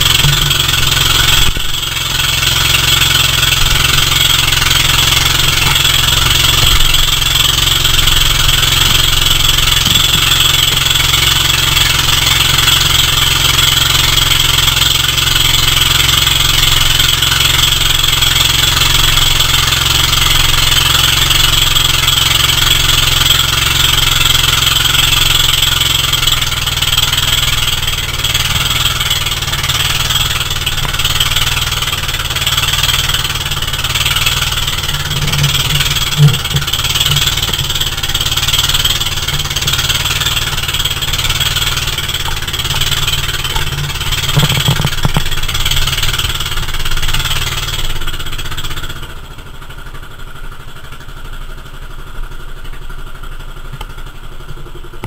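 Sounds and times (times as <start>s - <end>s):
boat engine running: 0.0s - 55.0s
wind: 0.0s - 55.0s.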